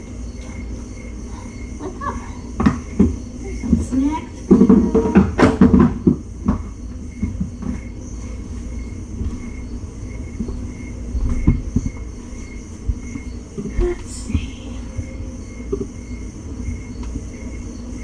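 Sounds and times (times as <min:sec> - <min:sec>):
steady low rumble: 0:06.2 - 0:18.0
footstep thumps: 0:08.5 - 0:16.0.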